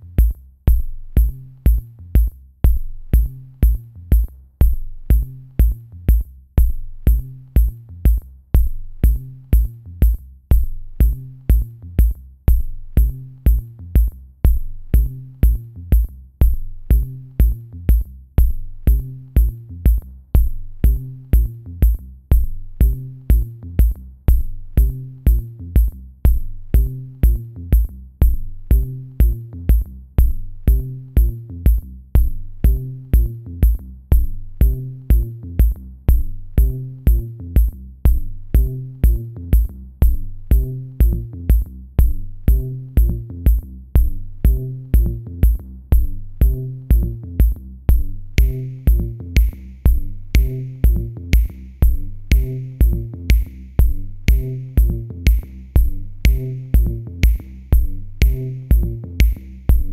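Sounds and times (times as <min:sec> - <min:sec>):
drum machine beat: 0:00.0 - 0:59.9
repeating bass line: 0:10.5 - 0:59.9
electronic music: 0:48.4 - 0:59.9.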